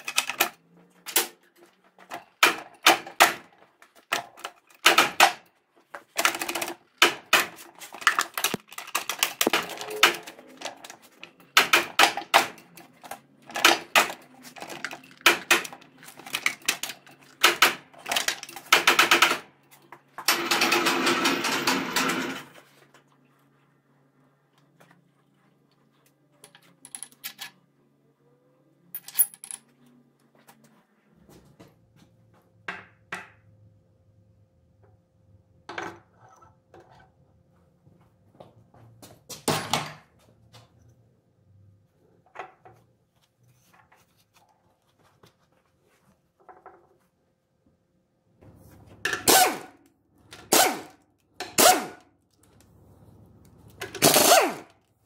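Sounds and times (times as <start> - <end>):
tools knocking on metal parts: 0.0 - 22.6.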